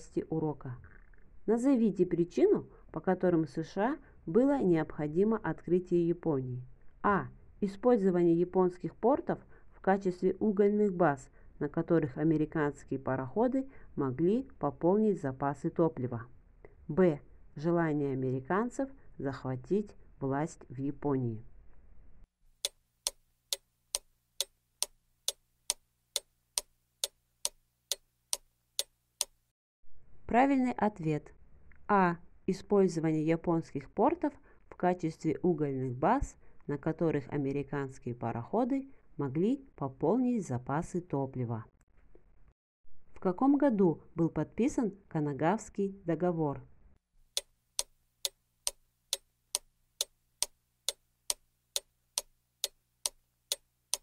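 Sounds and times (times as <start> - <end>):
clock ticking: 22.6 - 29.4, 47.4 - 54.0.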